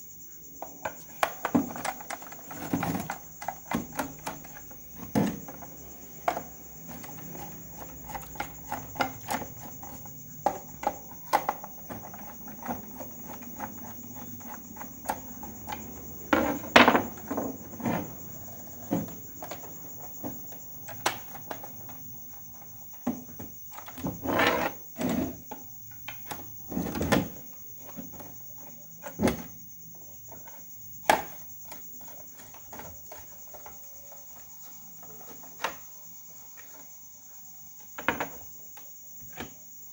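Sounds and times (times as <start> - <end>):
cricket chirring: 0.0 - 39.9.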